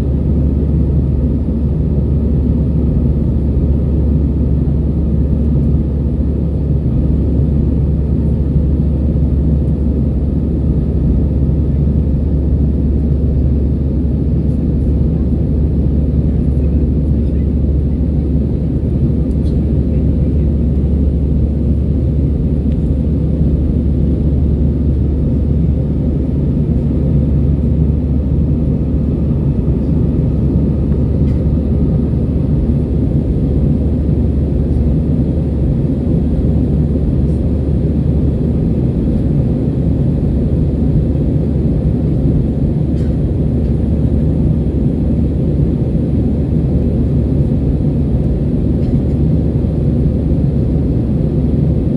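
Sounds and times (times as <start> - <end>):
airplane cabin engine rumble: 0.0 - 51.9.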